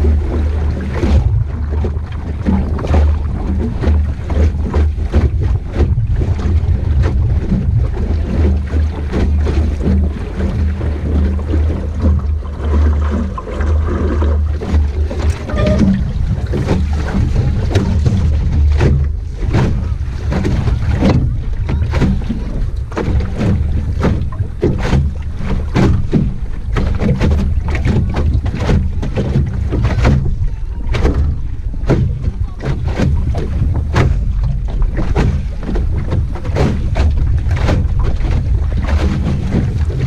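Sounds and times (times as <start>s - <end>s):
water slapping against hull: 0.0s - 40.0s
wind rumbling on microphone: 0.0s - 40.0s.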